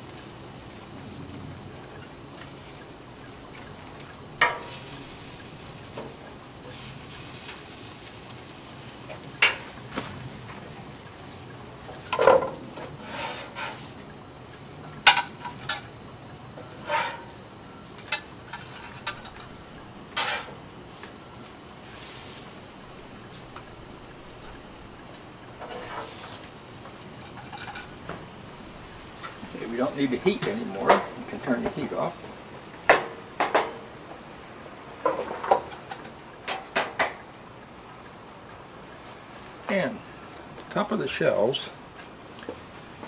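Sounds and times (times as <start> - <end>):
metal spatula scraping griddle: 12.2 - 14.0, 16.6 - 17.4, 18.1 - 19.5, 20.1 - 20.6, 25.6 - 26.5.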